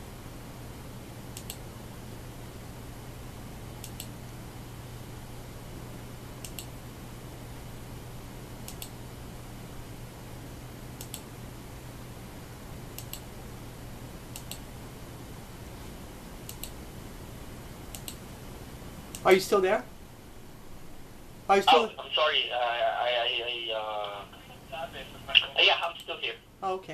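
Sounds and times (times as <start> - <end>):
low steady hum: 0.0 - 26.9
computer mouse double clicks: 6.4 - 6.7, 11.0 - 11.2, 13.0 - 13.2, 14.3 - 14.6, 16.5 - 16.8, 17.9 - 18.2.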